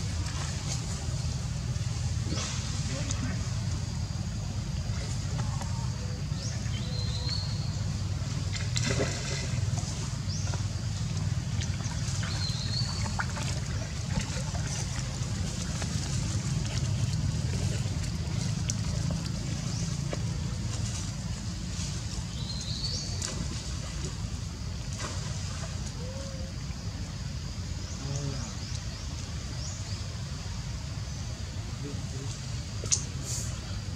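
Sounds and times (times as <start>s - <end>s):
water trickling: 8.4s - 21.7s.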